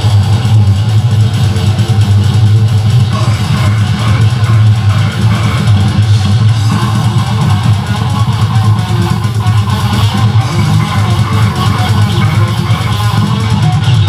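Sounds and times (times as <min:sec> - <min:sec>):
death metal band playing live: 0:00.0 - 0:14.0.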